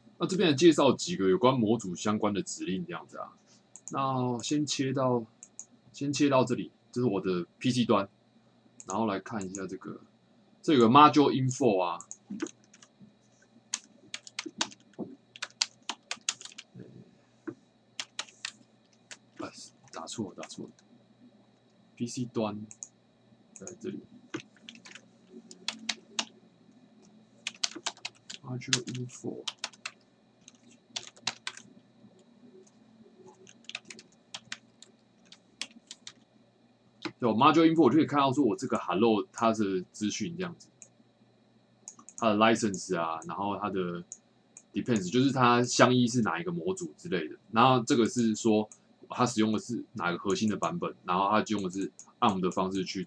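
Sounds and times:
typing on a keyboard: 12.0 - 12.9, 13.7 - 16.7, 18.0 - 19.2, 23.6 - 26.3, 27.5 - 31.7, 33.4 - 36.2.

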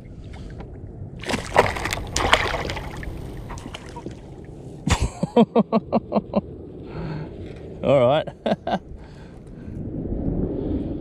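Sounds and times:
water lapping: 1.2 - 4.6
water splashing against kayak hull: 1.2 - 4.6.

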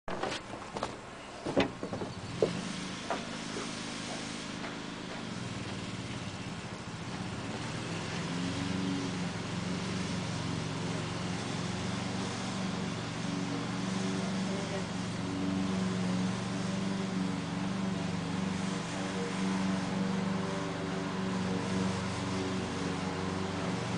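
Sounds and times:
sharp knocks: 0.1 - 3.7
diesel engine idling: 0.2 - 23.9.

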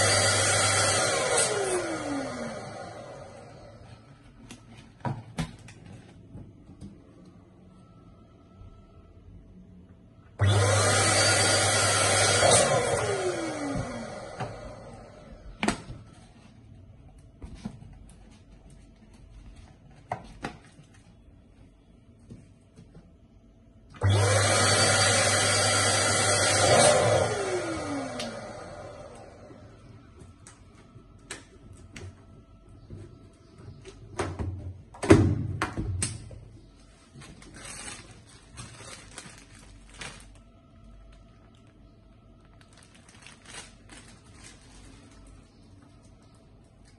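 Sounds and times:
electric balloon pump whining: 0.0 - 4.0, 10.4 - 15.8, 24.0 - 29.8.

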